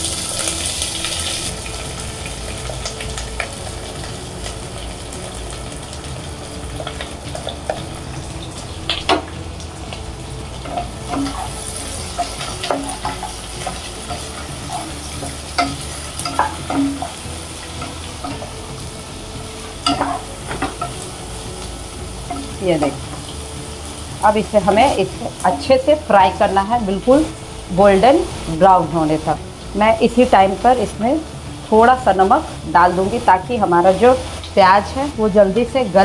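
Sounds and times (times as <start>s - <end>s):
onions sizzling in oil: 0.0s - 36.0s
utensil scraping and tapping pot: 10.6s - 17.2s.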